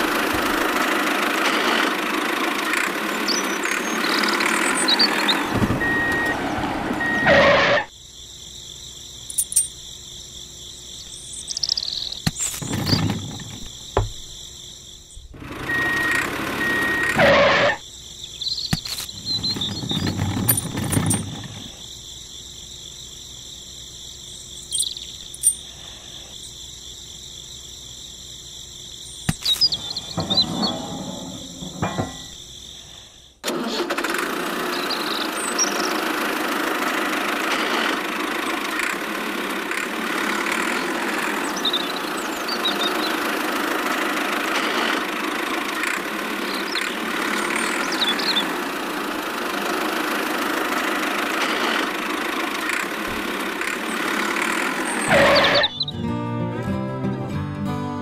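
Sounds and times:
small motor running: 0.0s - 7.8s, 15.4s - 17.8s, 33.6s - 55.6s
brief rattle: 29.2s - 32.5s.

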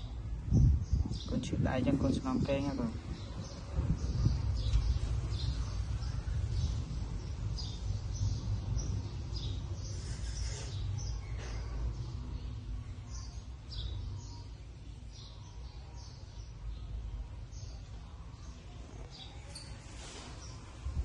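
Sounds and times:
steady low rumble: 0.0s - 10.1s
small birds chirping: 0.0s - 21.0s.

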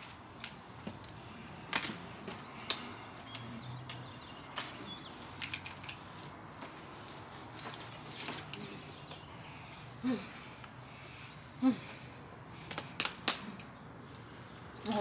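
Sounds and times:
bird chirps: 2.8s - 5.4s
food tray clicks and crinkles: 5.4s - 6.0s.

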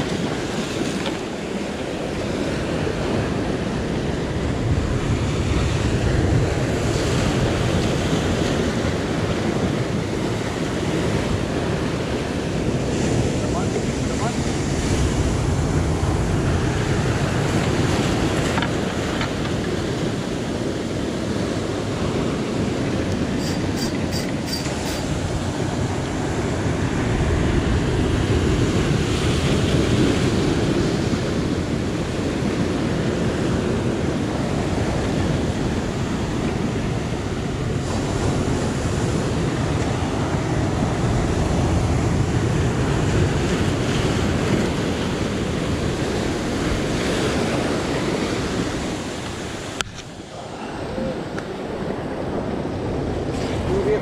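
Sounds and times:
sea surf washing ashore: 0.0s - 54.0s
wind buffeting microphone: 0.0s - 54.0s.

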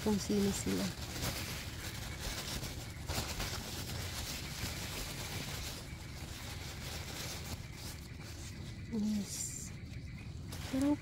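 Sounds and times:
paper wrapping rustling: 0.0s - 11.0s.

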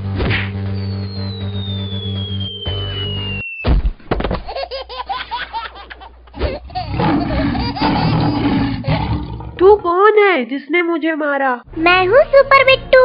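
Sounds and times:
cartoon falling whistle: 0.2s - 3.8s.

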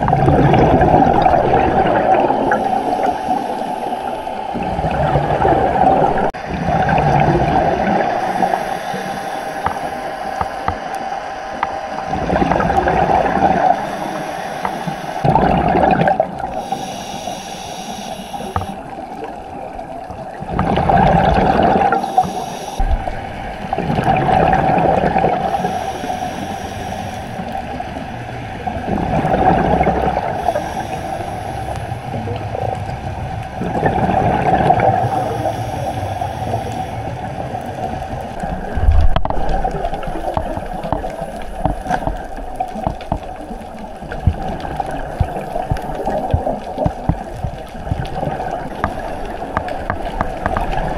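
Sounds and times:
bubbling underwater: 0.0s - 3.0s, 4.5s - 8.6s, 12.1s - 14.0s, 15.2s - 16.7s, 18.4s - 22.1s, 22.8s - 25.8s, 28.6s - 30.8s, 32.1s - 35.1s, 37.4s - 50.9s
diver exhaling through regulator: 30.3s - 32.0s.

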